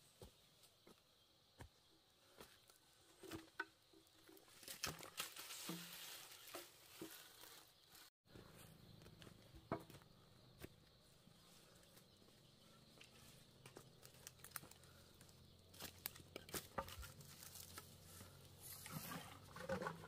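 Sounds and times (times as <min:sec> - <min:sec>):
footsteps on dry leaves: 0:04.5 - 0:08.1, 0:14.0 - 0:15.0, 0:15.7 - 0:18.4.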